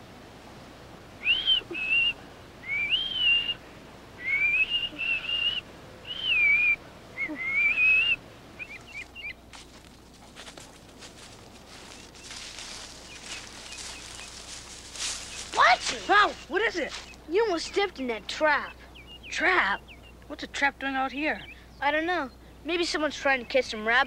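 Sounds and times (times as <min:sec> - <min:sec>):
person whistling: 0:04.2 - 0:08.2
rustling in brush: 0:08.7 - 0:17.2.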